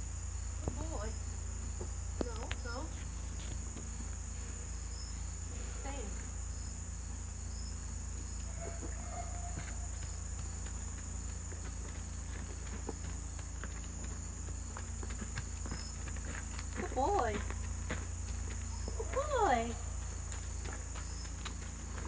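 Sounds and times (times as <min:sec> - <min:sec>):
high-pitched insect chorus: 0:00.0 - 0:22.0
faint taps of hooves on dirt: 0:00.6 - 0:04.3, 0:07.7 - 0:22.0.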